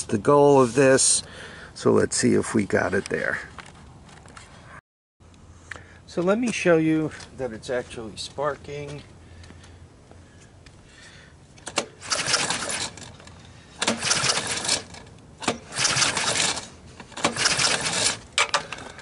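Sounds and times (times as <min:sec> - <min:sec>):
engine cranked by hand: 0:11.6 - 0:19.0.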